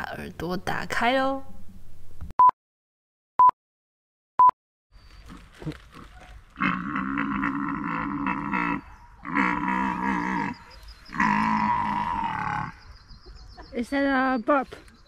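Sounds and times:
deer stag calling: 0:05.2 - 0:12.8.

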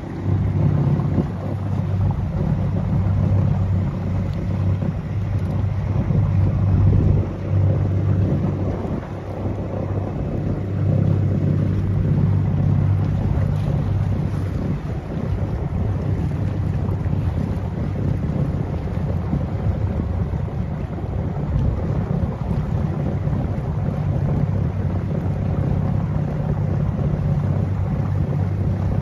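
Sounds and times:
motorboat engine humming: 0:00.0 - 0:29.0
wind buffeting microphone: 0:00.0 - 0:29.0.

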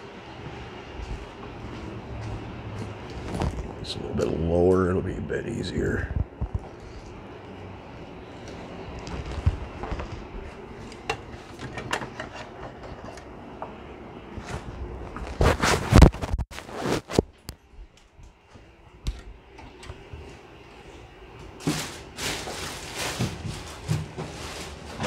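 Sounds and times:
thumps and rustling: 0:21.6 - 0:25.0.

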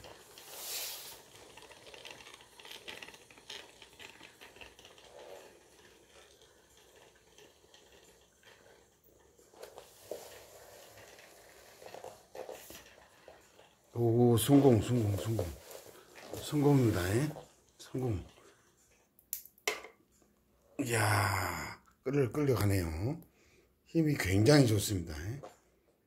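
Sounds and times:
wooden toy train clicking and rattling: 0:00.0 - 0:19.0.

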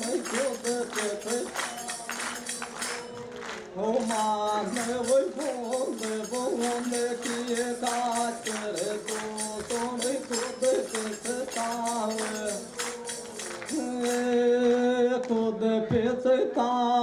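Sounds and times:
man singing folk song: 0:00.0 - 0:02.4, 0:03.8 - 0:17.0
tambourine jingling beat: 0:00.0 - 0:14.8.

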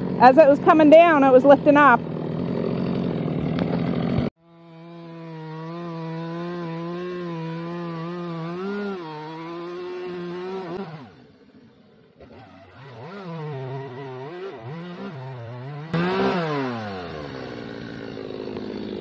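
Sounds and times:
chainsaw cutting wood: 0:00.0 - 0:19.0
loud engine noise: 0:12.2 - 0:19.0.

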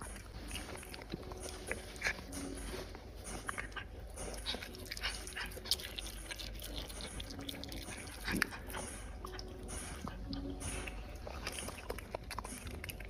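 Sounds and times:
animal chewing wetly: 0:03.5 - 0:13.0.

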